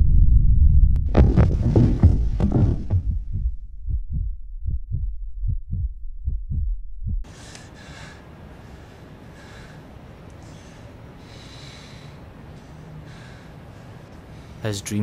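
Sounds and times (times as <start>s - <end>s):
heartbeat thuds: 0.5s - 7.3s
man breathing heavily: 7.2s - 14.6s.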